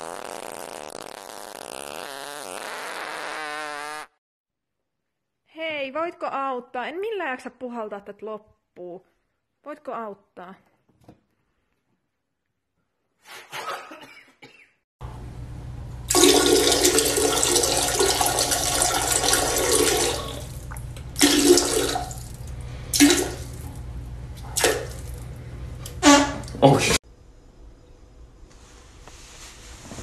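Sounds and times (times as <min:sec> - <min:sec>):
toilet flushing: 0:16.0 - 0:23.8.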